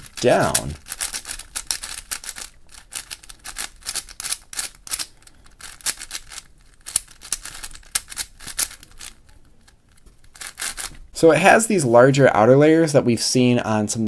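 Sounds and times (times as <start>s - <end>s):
plastic puzzle cube clacking: 0.0s - 10.9s.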